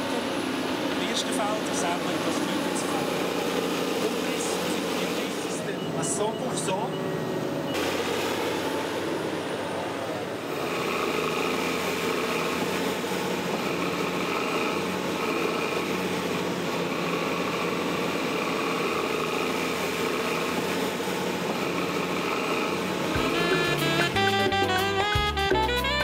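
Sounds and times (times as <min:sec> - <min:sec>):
excavator diesel engine running: 0:00.0 - 0:26.0
high tone: 0:23.1 - 0:26.0.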